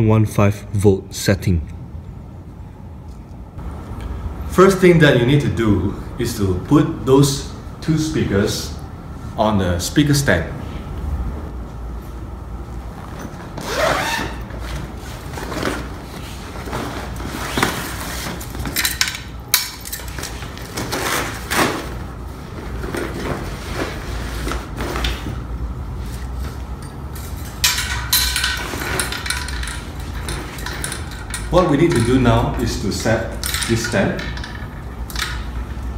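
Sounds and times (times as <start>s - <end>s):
steady low hum: 0.0s - 35.9s
metal stand clinking and rattling: 18.6s - 20.7s, 26.8s - 35.9s
fabric bag rustling: 20.3s - 25.4s.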